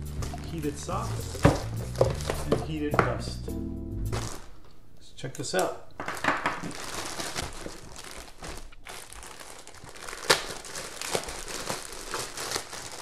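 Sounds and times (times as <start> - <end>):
plastic mailer bag crinkling: 0.0 - 2.7, 4.1 - 4.7, 6.0 - 13.0.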